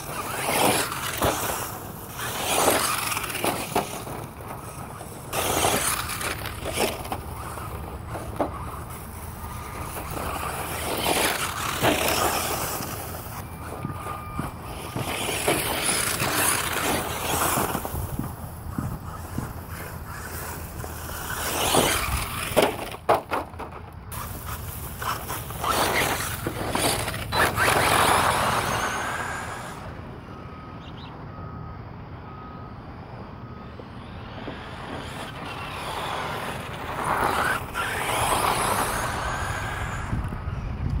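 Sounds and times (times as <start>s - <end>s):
rc truck driving on gravel: 0.0s - 41.0s.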